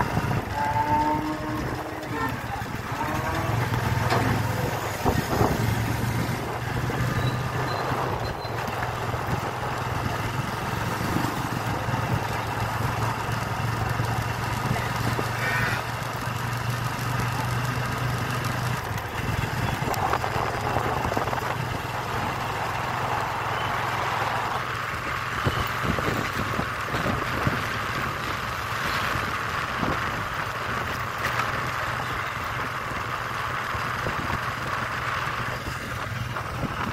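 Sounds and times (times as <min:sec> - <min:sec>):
road and wind noise: 0:00.0 - 0:36.9
small vehicle engine running: 0:00.0 - 0:36.9.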